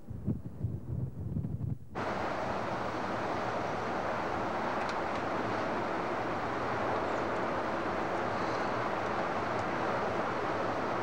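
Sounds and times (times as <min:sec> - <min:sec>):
strong wind roaring: 0:00.0 - 0:11.0.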